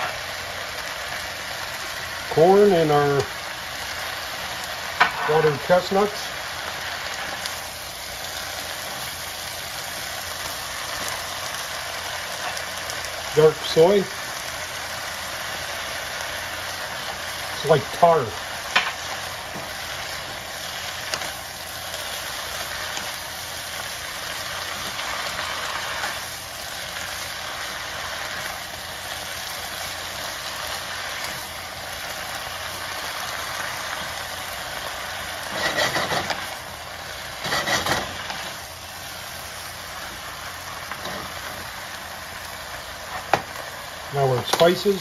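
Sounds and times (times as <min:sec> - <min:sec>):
food sizzling in a hot pan: 0:00.0 - 0:45.0
spatula scraping and knocking pan: 0:05.0 - 0:05.3, 0:35.5 - 0:36.4, 0:37.4 - 0:38.4.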